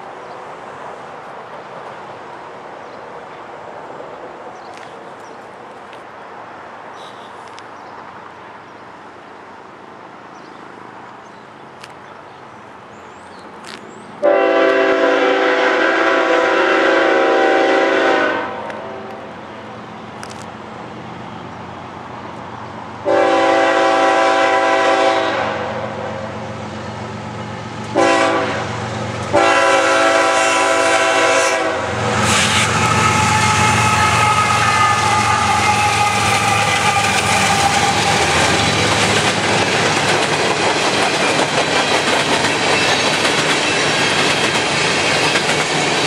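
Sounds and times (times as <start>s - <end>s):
low rumble of train: 0.0s - 46.0s
locomotive air horn blasts: 14.2s - 19.0s, 23.0s - 26.0s, 27.9s - 38.7s.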